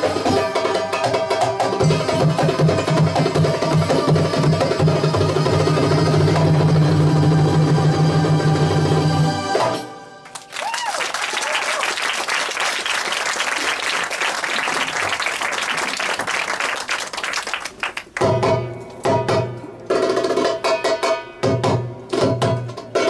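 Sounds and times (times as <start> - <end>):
violin oud and hand drums ensemble: 0.0 - 9.9, 18.2 - 23.0
audience applauding: 10.2 - 18.3.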